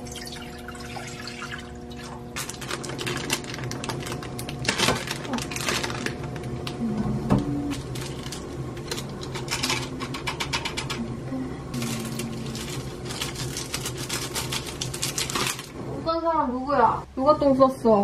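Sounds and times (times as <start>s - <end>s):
seasoning packets crinkling: 2.4s - 6.7s, 7.7s - 9.4s, 11.8s - 15.7s
woman humming: 6.8s - 7.8s, 11.0s - 12.7s.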